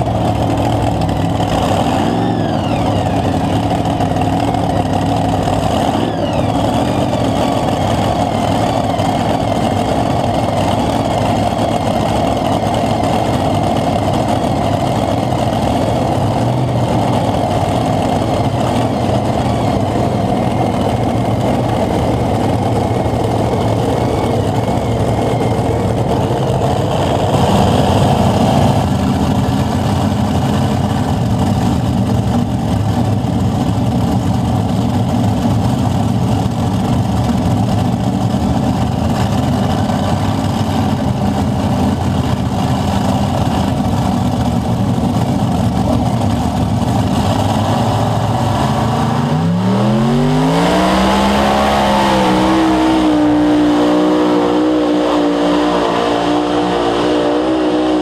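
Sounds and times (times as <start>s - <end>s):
heavy vehicle engine running: 0.0s - 58.0s.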